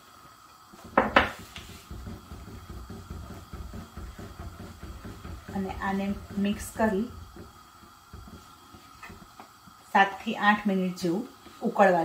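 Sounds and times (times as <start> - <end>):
low uneven rumble: 1.4 - 9.4.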